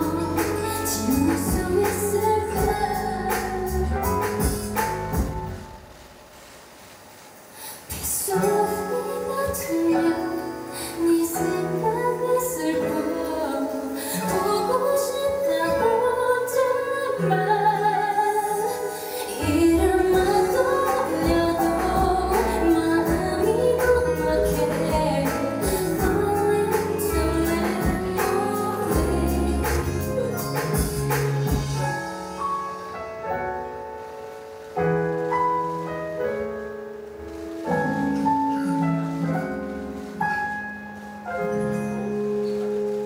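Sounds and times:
woman singing slow melody: 0:00.0 - 0:04.8, 0:07.9 - 0:32.4
deep bass: 0:00.0 - 0:05.8, 0:19.6 - 0:31.9
musical accompaniment: 0:00.0 - 0:06.6, 0:07.8 - 0:43.0.

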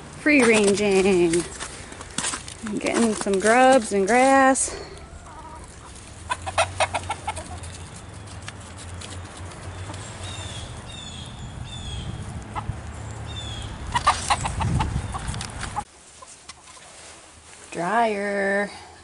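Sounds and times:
chickens clucking: 0:04.2 - 0:08.1, 0:09.3 - 0:10.8, 0:13.7 - 0:17.0.

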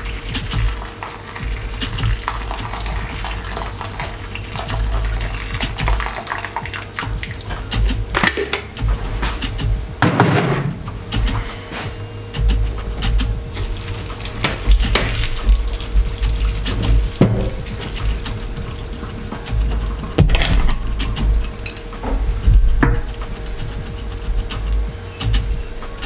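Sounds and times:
water dripping into a metal sink: 0:00.0 - 0:07.6, 0:13.5 - 0:18.8
water sloshing in a ceramic bowl: 0:13.6 - 0:18.9.

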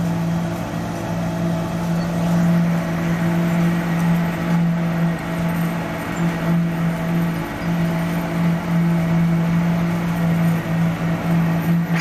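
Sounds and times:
concrete paver machinery humming: 0:00.0 - 0:12.0.

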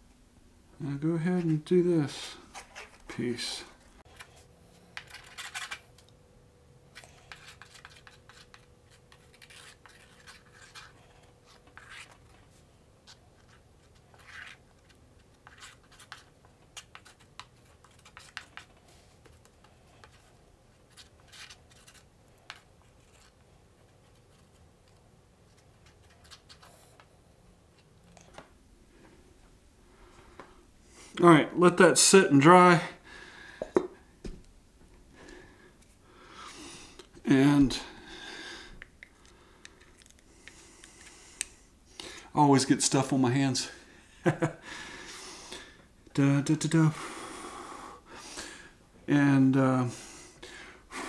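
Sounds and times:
stick scraping on cardboard: 0:07.3 - 0:12.3.

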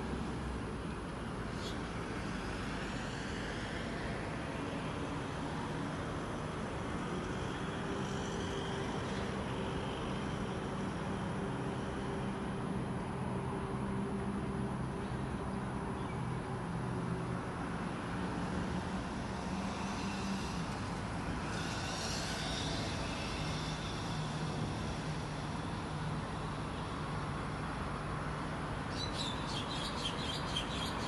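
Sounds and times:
traffic rumble: 0:00.0 - 0:31.0
hiss: 0:18.5 - 0:27.1.

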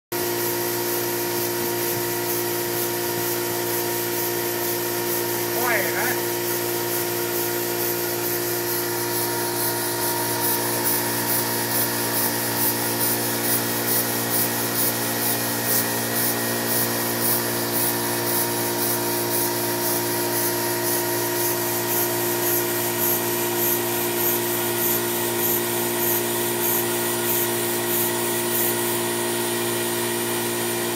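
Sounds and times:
steam hissing: 0:00.3 - 0:29.1
steady hum: 0:04.5 - 0:13.9.

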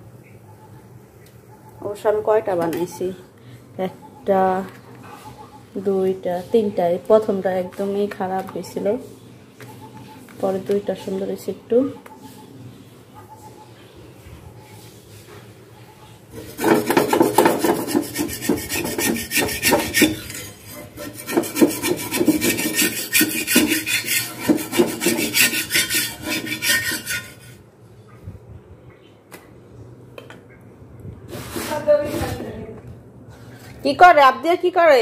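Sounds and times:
metal spatula scraping a griddle: 0:16.4 - 0:27.6.

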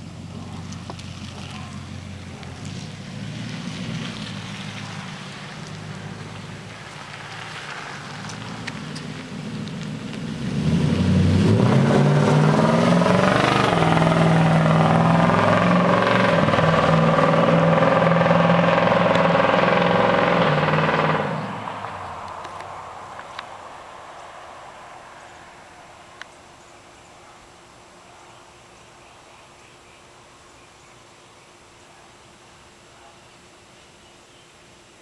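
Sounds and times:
truck exhaust accelerating: 0:00.0 - 0:26.2.

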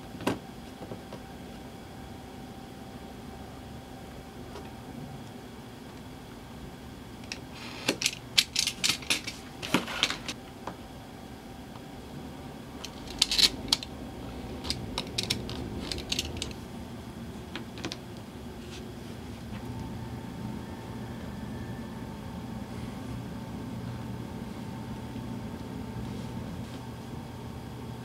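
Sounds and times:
metal coins clinking: 0:12.9 - 0:13.9.

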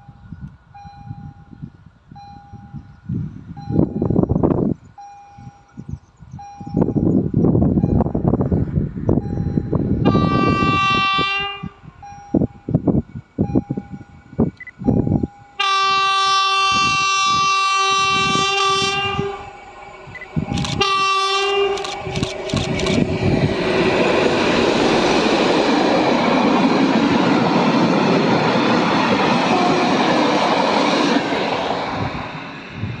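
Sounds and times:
diesel locomotive horn blasts: 0:10.0 - 0:12.0, 0:15.5 - 0:22.1, 0:29.4 - 0:30.3.

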